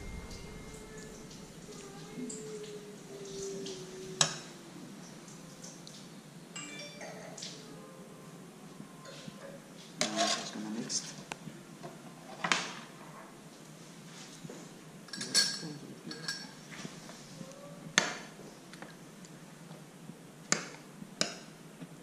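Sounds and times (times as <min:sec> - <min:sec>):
dishes and utensils clinking: 0:06.6 - 0:07.6, 0:15.1 - 0:16.7.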